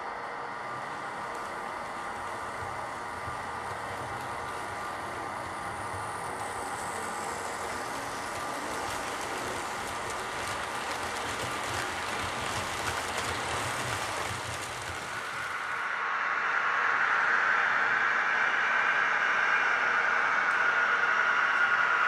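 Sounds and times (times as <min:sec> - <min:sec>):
model train rolling on track: 0:00.0 - 0:16.0.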